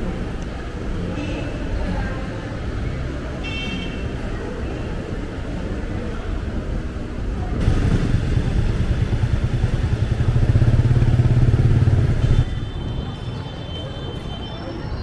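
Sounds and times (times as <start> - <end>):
street traffic: 0.0 - 15.0
vehicle engine rumbling: 6.8 - 14.4.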